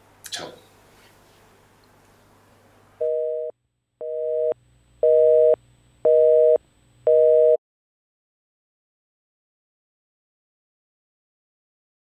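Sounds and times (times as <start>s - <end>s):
telephone busy signal beeps: 3.0s - 7.6s.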